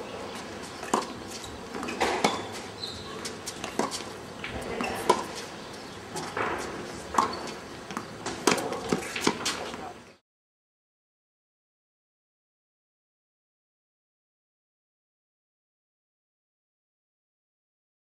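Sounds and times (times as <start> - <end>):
tennis ball bouncing on court: 0.4 - 9.8
tennis ball hit by racquets: 0.4 - 9.9.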